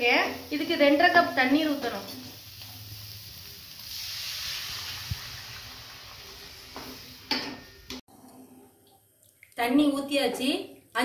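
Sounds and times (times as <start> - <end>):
water sizzling in hot oil: 0.0 - 8.0.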